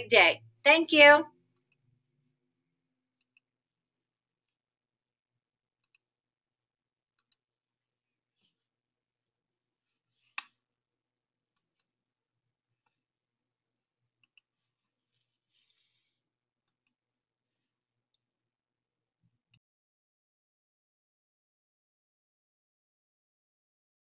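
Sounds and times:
computer mouse clicks: 3.2s - 3.5s, 5.8s - 6.0s, 7.2s - 7.4s, 14.2s - 14.5s, 16.6s - 17.0s.

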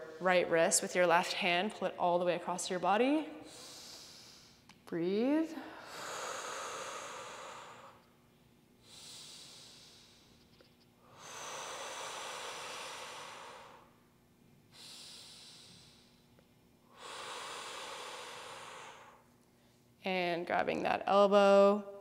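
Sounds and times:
woman breathing deeply: 3.3s - 4.7s, 5.6s - 8.0s, 8.8s - 14.0s, 14.7s - 16.3s, 16.9s - 19.7s.

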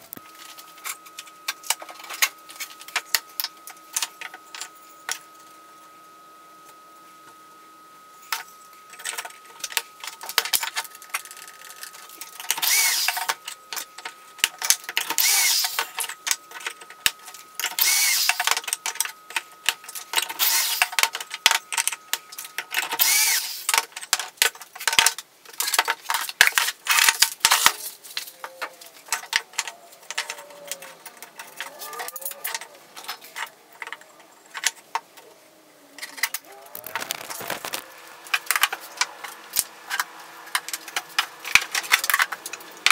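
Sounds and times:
cordless drill boring wood: 12.6s - 13.3s, 15.2s - 15.8s, 17.8s - 18.4s, 20.4s - 20.8s, 23.0s - 23.7s.

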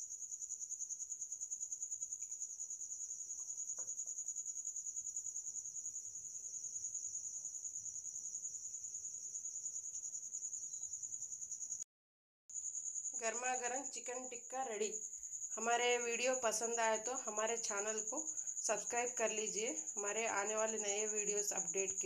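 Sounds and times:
high-pitched insect trill: 0.0s - 11.9s, 12.5s - 22.0s.

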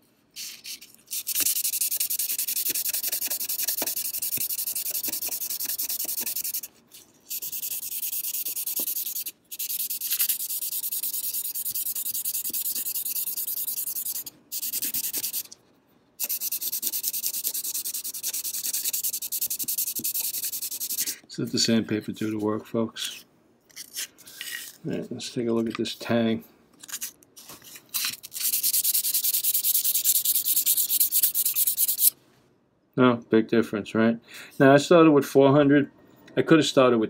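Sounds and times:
sandpaper rasping on steel blade: 0.4s - 6.7s, 7.3s - 15.6s, 16.2s - 21.2s, 28.2s - 32.1s.

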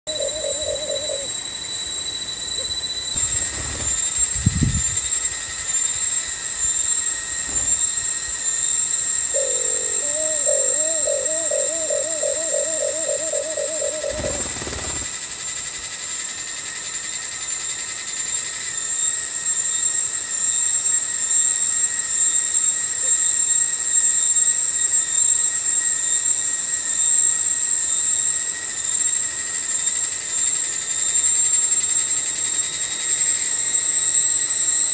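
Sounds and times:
dove cooing: 0.0s - 1.4s, 9.3s - 15.1s
forest insects droning: 0.0s - 34.9s.

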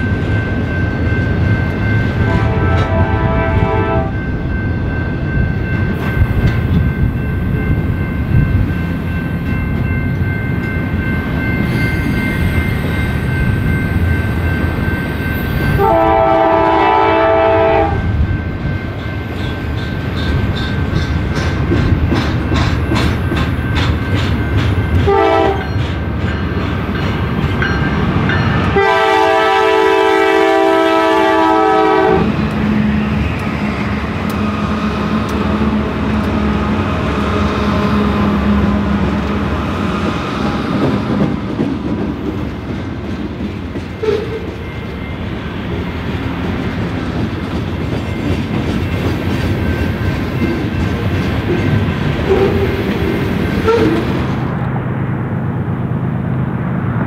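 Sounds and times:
freight train rumbling: 0.0s - 57.0s
train air horn: 2.2s - 4.2s, 15.8s - 18.1s, 25.0s - 25.7s, 28.7s - 32.4s, 44.0s - 44.5s, 52.2s - 52.8s, 53.6s - 54.0s
wheels clicking over rail joints: 19.0s - 28.8s.

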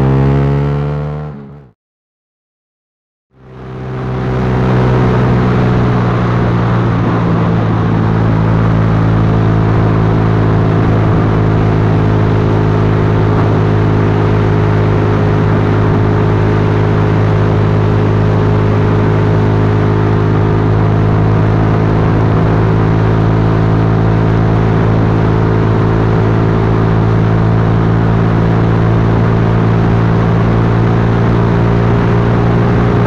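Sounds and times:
motorcycle engine running: 0.0s - 1.7s, 3.4s - 33.0s
constant rushing noise: 3.4s - 33.0s.

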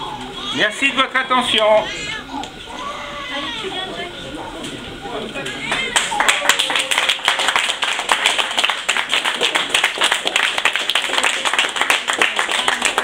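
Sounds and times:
people clapping: 5.5s - 13.0s.

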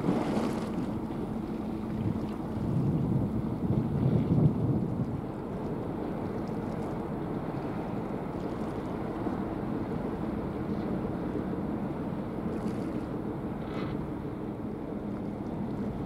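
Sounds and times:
wind buffeting microphone: 0.0s - 6.4s
low rumble of boats: 0.0s - 16.0s.

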